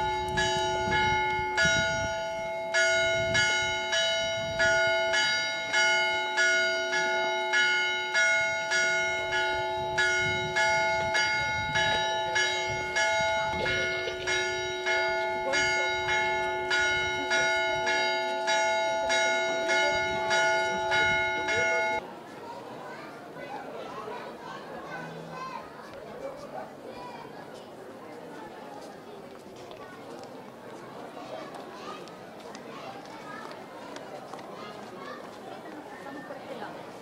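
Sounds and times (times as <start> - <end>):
church bells pealing: 0.0 - 22.0.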